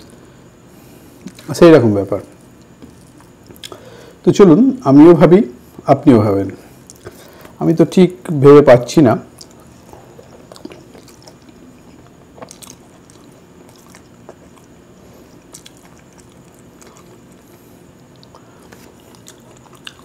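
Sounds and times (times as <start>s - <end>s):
chewing: 2.3s - 3.8s, 9.3s - 20.0s.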